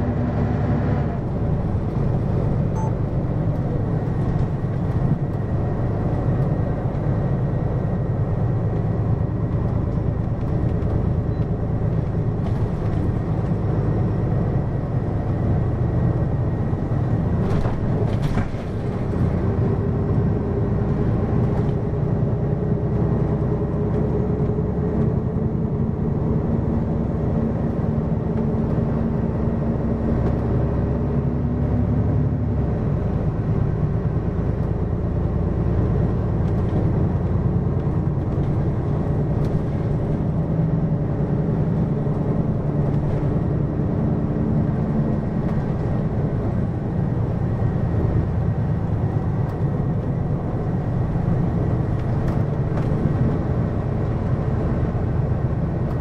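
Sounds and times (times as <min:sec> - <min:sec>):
bus diesel engine running: 0:00.0 - 0:56.0
road noise: 0:00.0 - 0:56.0.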